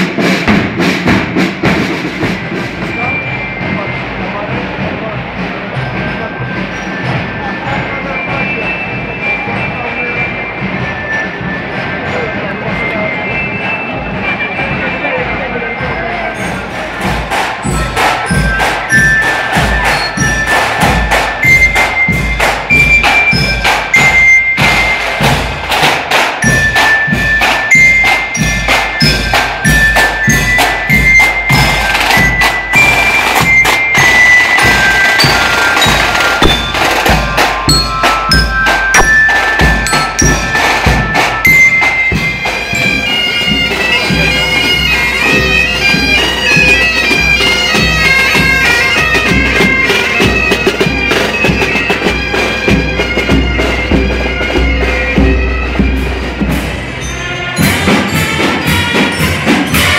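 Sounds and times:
marching drums: 0:00.0 - 0:59.9
bagpipes: 0:01.7 - 0:59.9
high bright melody: 0:17.6 - 0:52.1, 0:55.1 - 0:59.9.

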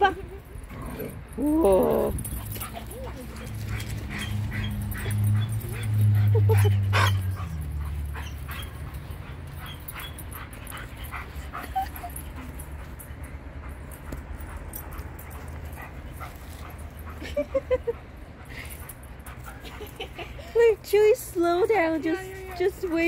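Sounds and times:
dog yips and whimpers: 0:01.5 - 0:12.4.

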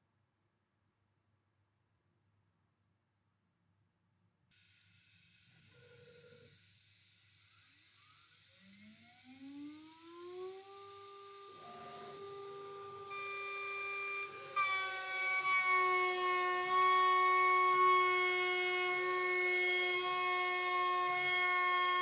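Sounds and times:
router spindle whining: 0:07.7 - 0:22.0
end mill cutting metal: 0:10.5 - 0:22.0.

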